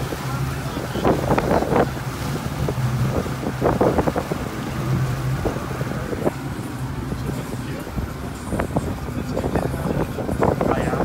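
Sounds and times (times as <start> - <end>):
boat engine idling: 0.0 - 11.0
wind buffeting microphone: 0.0 - 11.0.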